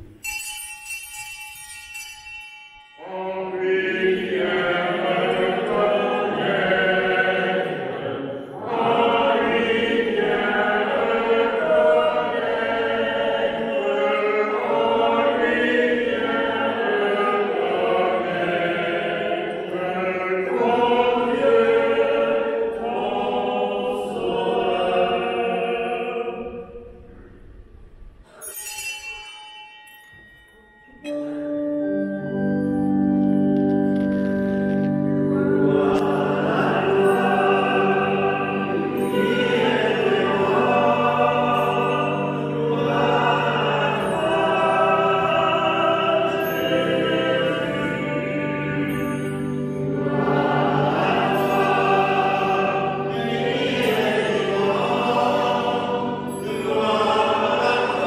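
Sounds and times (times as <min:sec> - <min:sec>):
small altar bell ringing: 0:00.0 - 0:06.5, 0:28.3 - 0:33.4, 0:35.3 - 0:58.0
voices singing liturgical chant: 0:03.0 - 0:27.0, 0:35.4 - 0:58.0.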